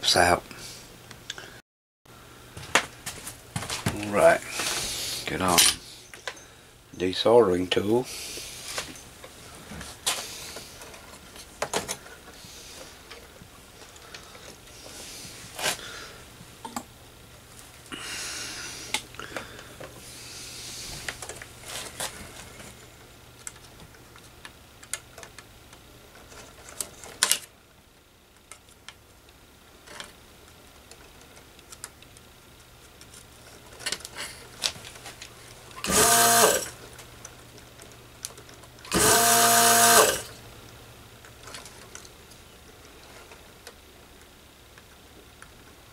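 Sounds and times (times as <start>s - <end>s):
desoldering pump running: 32.9s - 43.0s.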